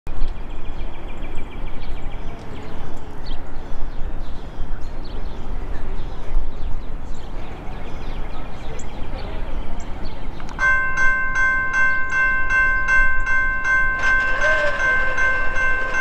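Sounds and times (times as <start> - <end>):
small birds chirping and trilling: 0.2 - 10.6.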